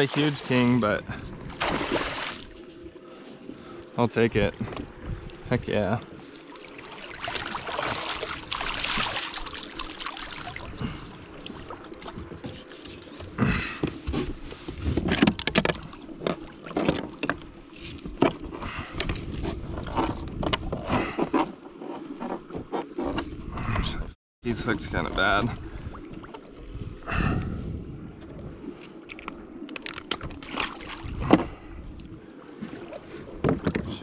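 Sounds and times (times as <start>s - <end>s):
water splashing at kayak: 0.0s - 2.8s, 4.4s - 21.2s, 29.7s - 31.6s.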